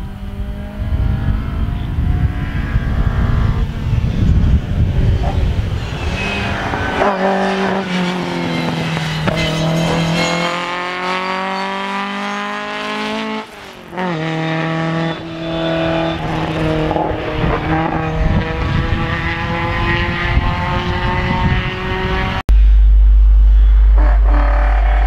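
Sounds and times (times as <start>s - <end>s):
race car engine at high revs: 0.0s - 22.5s
loud low rumble: 22.5s - 25.0s.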